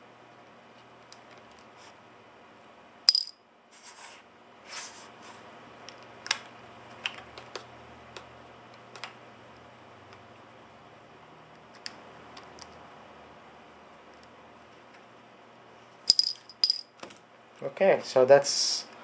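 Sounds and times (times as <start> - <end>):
ringing metal clink: 3.1 - 3.4, 16.1 - 16.9.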